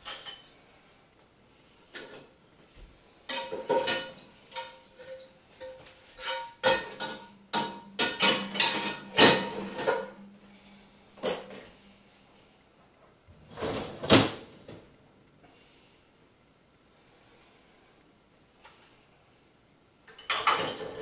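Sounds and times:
dishes and cutlery clattering: 0.0s - 0.6s, 3.3s - 10.2s, 11.2s - 11.7s, 20.1s - 21.0s.

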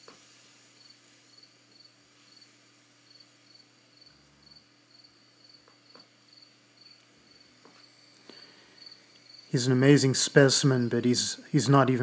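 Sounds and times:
insects chirping: 0.0s - 11.2s
steady high hum: 0.0s - 12.0s.

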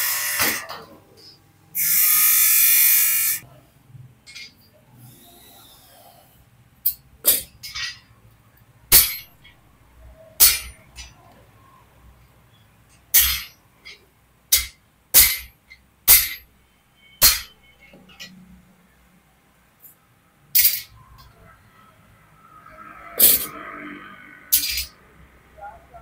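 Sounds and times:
steel striking steel clanks: 8.9s - 9.3s, 10.4s - 11.2s, 13.1s - 16.5s, 17.2s - 18.4s, 20.5s - 21.4s, 23.2s - 23.6s, 24.5s - 25.0s.

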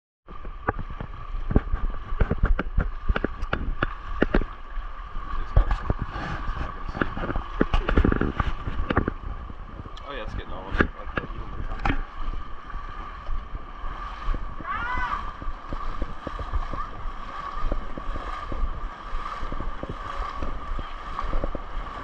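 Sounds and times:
feet wading through water: 0.3s - 22.0s
low rumble: 0.3s - 22.0s.

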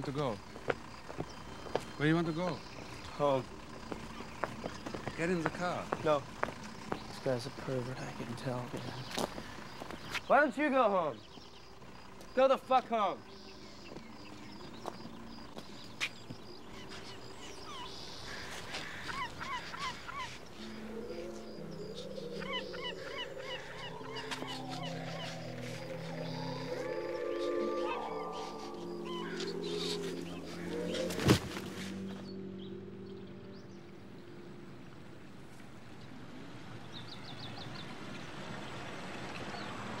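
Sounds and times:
bird chirping: 0.0s - 35.0s
low sustained music chord: 11.1s - 37.2s
geese honking: 15.3s - 32.7s.

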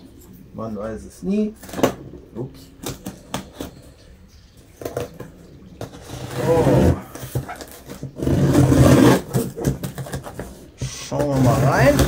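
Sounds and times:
cardboard package rubbing and rustling: 5.8s - 12.0s.

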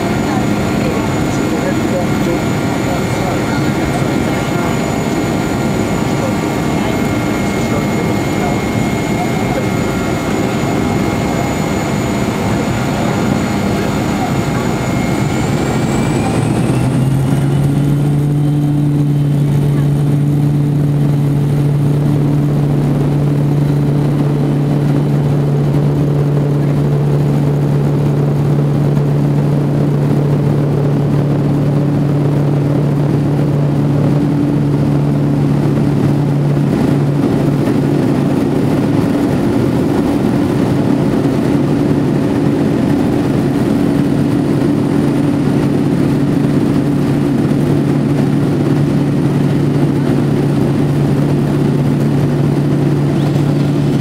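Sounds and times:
propeller engine hum: 0.0s - 54.0s
rushing air: 19.5s - 26.5s.

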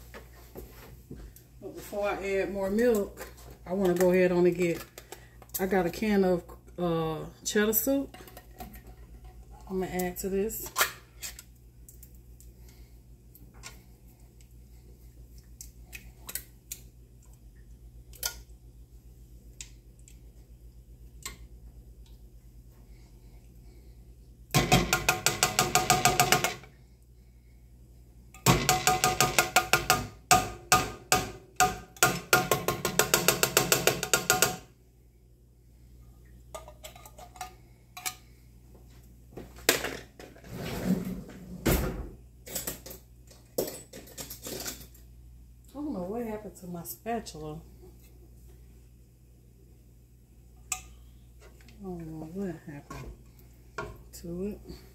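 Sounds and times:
clinks and scrapes: 42.4s - 45.0s.

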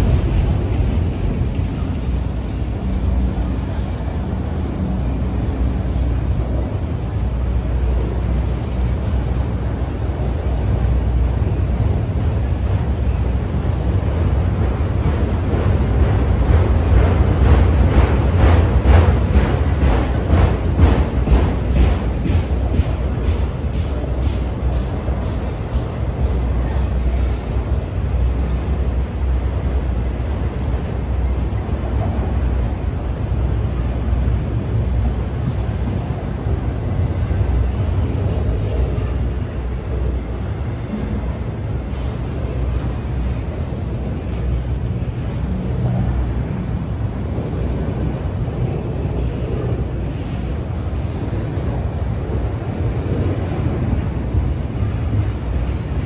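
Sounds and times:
freight train wheels rumbling on rails: 0.0s - 56.0s.

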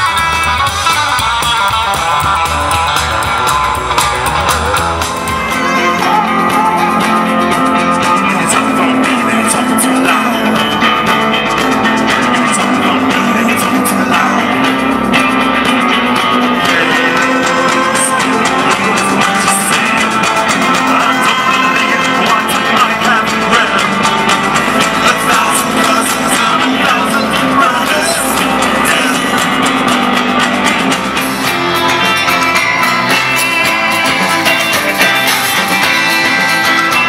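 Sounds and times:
drums: 0.0s - 37.0s
electric guitar: 0.0s - 37.0s
harmonica: 13.9s - 37.0s.

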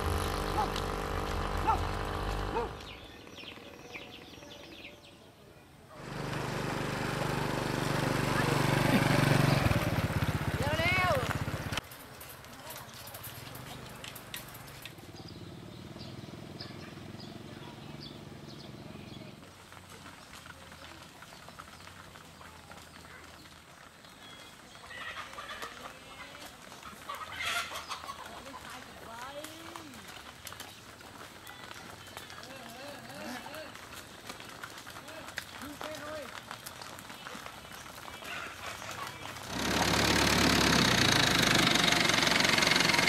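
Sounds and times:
motorbike engine humming: 0.0s - 4.2s, 6.0s - 11.8s, 38.9s - 43.0s
small motorbike engine running: 0.0s - 4.5s, 6.0s - 11.8s, 12.7s - 43.0s
hooves clicking on asphalt: 0.0s - 5.1s, 6.0s - 43.0s
birds chirping: 0.0s - 6.3s, 8.3s - 11.8s, 12.6s - 34.5s.

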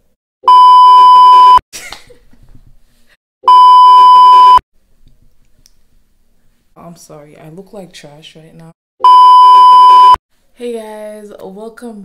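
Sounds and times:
high-pitched test tone beep: 3.5s - 4.6s, 9.0s - 10.2s.

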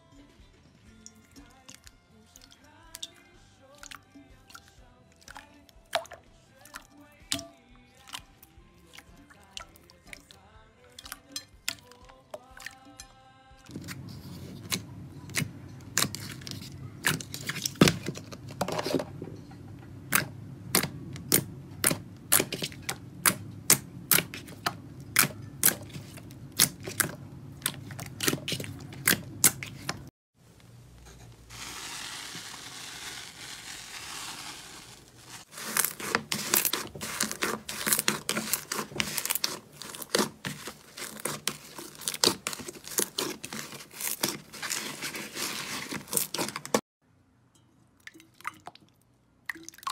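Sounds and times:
foamy slime fizzing hiss: 31.5s - 39.2s.

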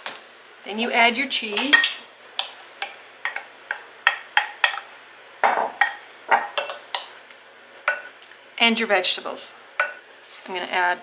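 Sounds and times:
wooden spoon tapping bowl: 1.6s - 7.1s, 7.9s - 8.1s, 9.8s - 10.0s.

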